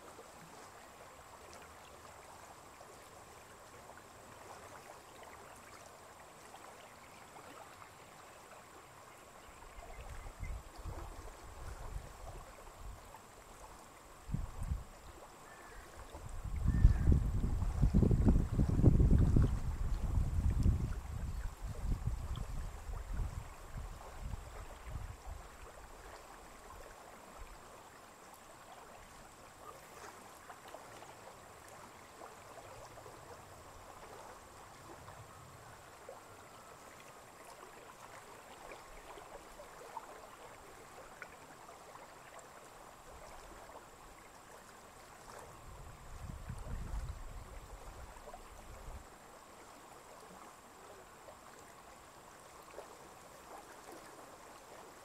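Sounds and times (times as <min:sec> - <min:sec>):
water lapping at shore: 0:00.0 - 0:55.0
wind buffeting microphone: 0:16.2 - 0:25.4, 0:45.6 - 0:48.1.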